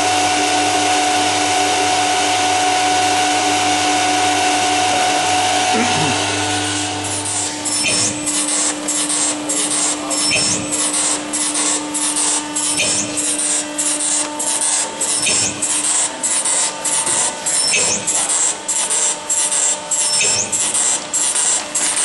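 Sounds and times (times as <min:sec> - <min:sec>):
machine steady hum: 0:00.0 - 0:22.0
machine hiss bursts: 0:05.8 - 0:22.0.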